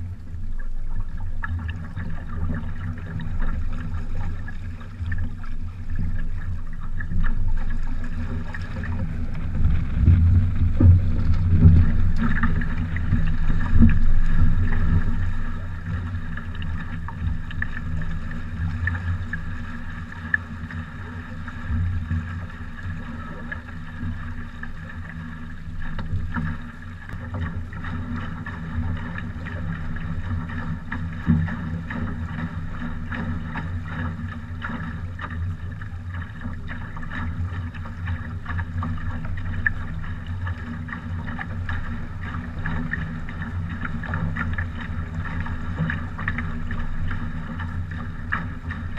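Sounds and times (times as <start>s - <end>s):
water splashing along hull: 0.0s - 48.9s
wind on microphone: 7.0s - 22.3s.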